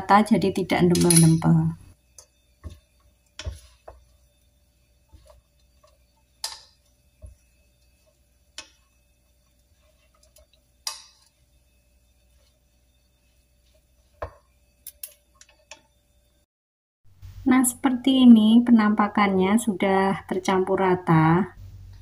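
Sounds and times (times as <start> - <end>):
spatula scraping a wok: 2.6 - 15.9.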